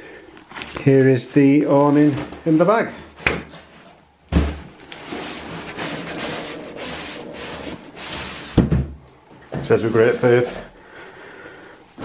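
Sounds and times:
fabric rustling against cardboard: 0:00.4 - 0:08.8
thump: 0:04.3 - 0:04.7, 0:08.5 - 0:09.0.

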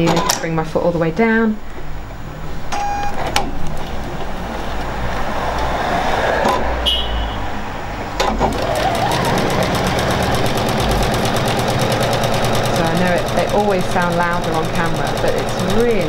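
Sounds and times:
short beep: 0:06.8 - 0:07.4
sewing machine stitching: 0:08.2 - 0:16.0.

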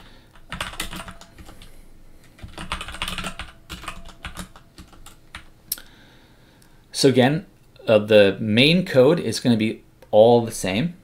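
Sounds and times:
computer keyboard typing: 0:00.0 - 0:05.5.

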